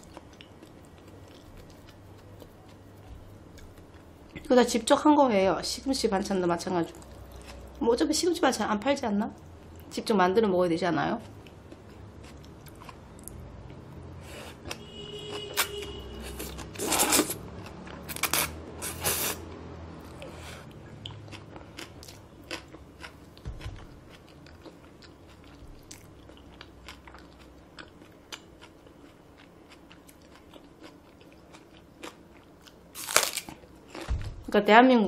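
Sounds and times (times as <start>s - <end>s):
chewing with wet mouth clicks: 0.0s - 4.5s, 11.2s - 13.8s, 20.9s - 32.8s.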